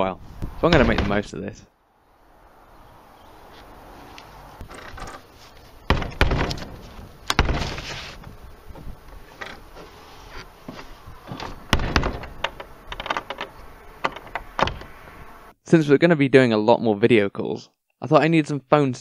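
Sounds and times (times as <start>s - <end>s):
heavy knocks on wooden door: 0.7s - 1.3s, 5.9s - 7.8s, 11.3s - 12.5s.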